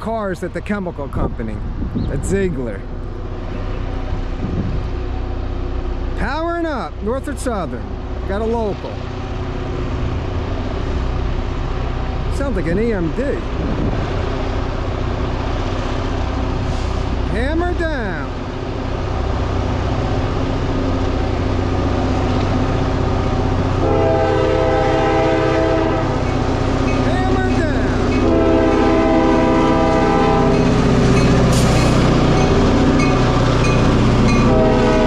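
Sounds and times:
diesel locomotive engine rumble: 0:00.0 - 0:35.0
locomotive air horn blasts: 0:23.8 - 0:26.3, 0:27.5 - 0:30.8, 0:34.3 - 0:35.0.

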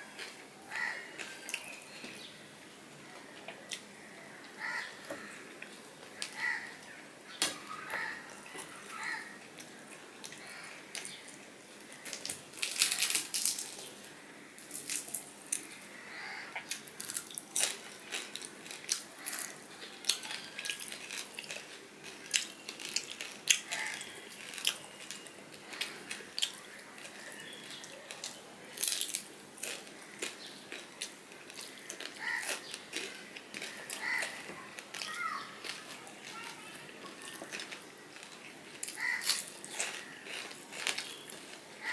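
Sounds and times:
person chewing: 0:16.5 - 0:41.9.

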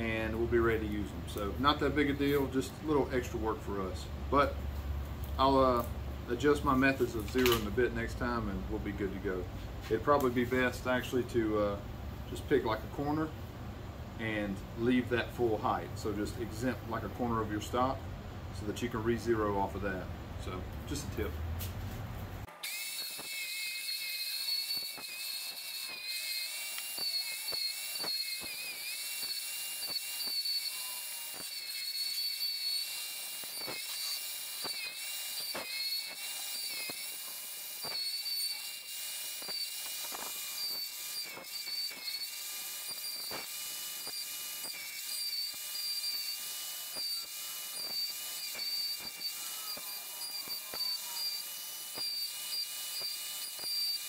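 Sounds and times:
bandsaw whining: 0:22.4 - 0:54.0.

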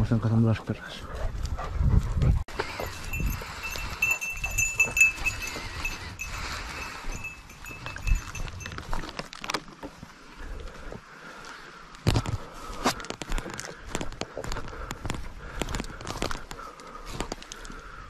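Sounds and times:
rustling brush: 0:02.6 - 0:09.4
dog collar bell tinkling: 0:02.8 - 0:09.1.

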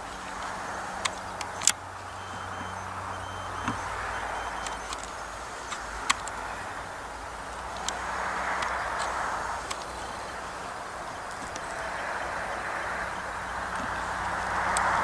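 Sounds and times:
steady background hiss: 0:00.0 - 0:15.0
sharp clicks: 0:00.1 - 0:06.7, 0:07.4 - 0:10.1, 0:11.2 - 0:15.0.

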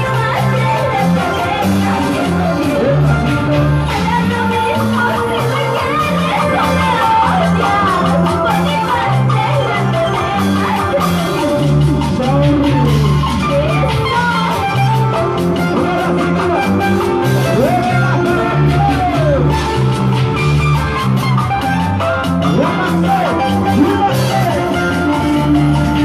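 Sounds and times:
live band playing latin dance music: 0:00.0 - 0:26.0
pitch-bending lead melody: 0:00.0 - 0:26.0
repeating bass line: 0:00.0 - 0:26.0.

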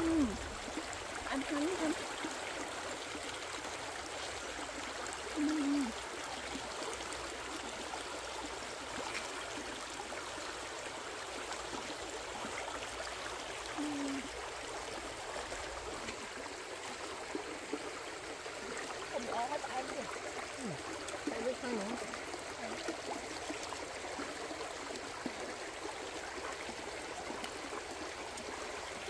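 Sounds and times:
person humming: 0:00.0 - 0:00.4, 0:05.4 - 0:05.9, 0:13.8 - 0:14.3, 0:20.6 - 0:20.8
flowing water rushing: 0:00.0 - 0:29.0.

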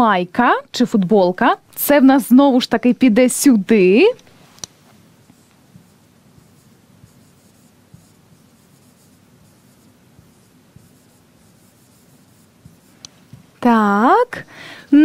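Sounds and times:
marker scratching on whiteboard: 0:04.2 - 0:13.8.

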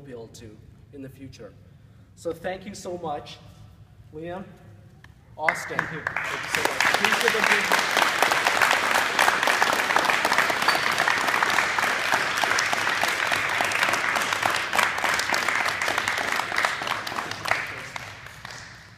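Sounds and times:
people applauding: 0:05.4 - 0:18.9.

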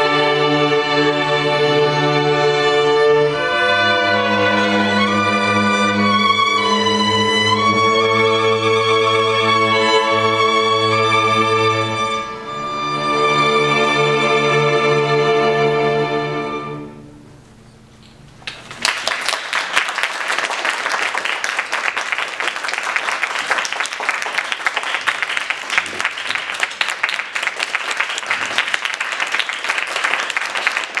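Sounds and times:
string orchestra chord: 0:00.0 - 0:17.2
audience applause: 0:18.5 - 0:31.0.

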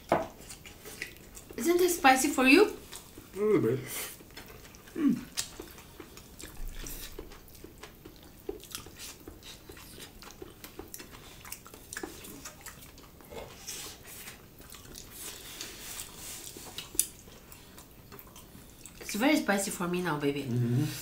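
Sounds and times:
people chewing food: 0:00.0 - 0:21.0
wet smacks and clicks: 0:04.3 - 0:13.1, 0:16.4 - 0:17.3.

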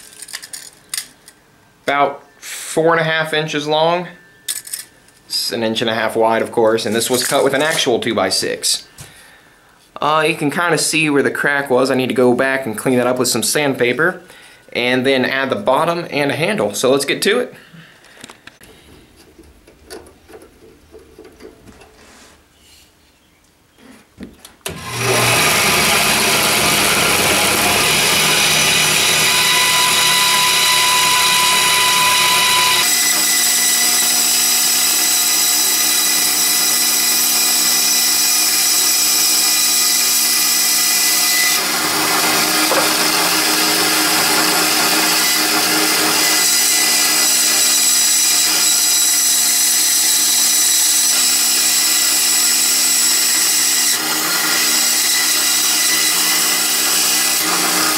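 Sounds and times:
band saw cutting wood: 0:24.7 - 0:57.9.

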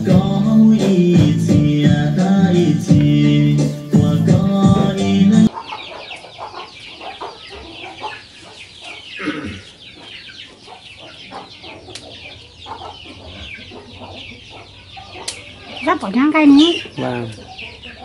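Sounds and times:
music track: 0:00.0 - 0:05.5
chickens clucking: 0:00.0 - 0:18.0.

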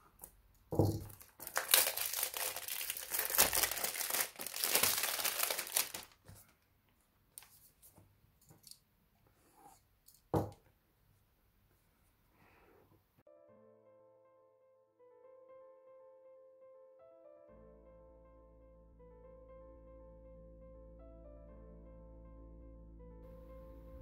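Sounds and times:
packaging tearing and crinkling: 0:01.0 - 0:06.2.

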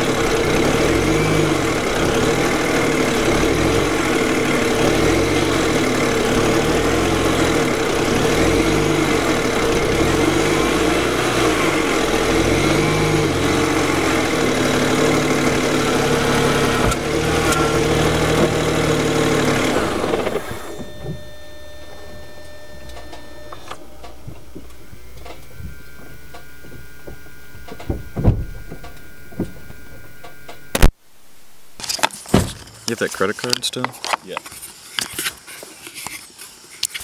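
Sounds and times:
car engine running at low revs: 0:00.0 - 0:31.0
clicks: 0:20.1 - 0:30.9
faint steady hum: 0:20.7 - 0:31.8.

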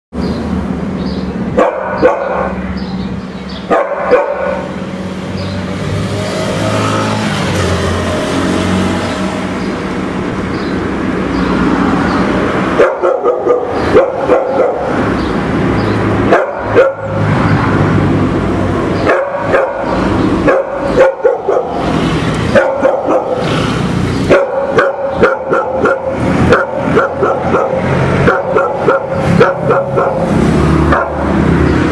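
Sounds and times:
dog barking: 0:01.6 - 0:02.6, 0:03.7 - 0:04.7, 0:12.8 - 0:15.0, 0:16.2 - 0:17.2, 0:19.0 - 0:23.5, 0:24.3 - 0:31.3
car passing: 0:03.7 - 0:31.9.

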